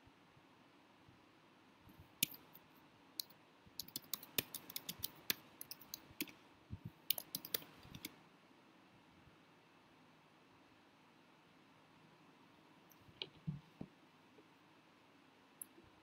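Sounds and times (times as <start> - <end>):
typing on computer keyboard: 3.2 - 6.4, 7.1 - 8.2.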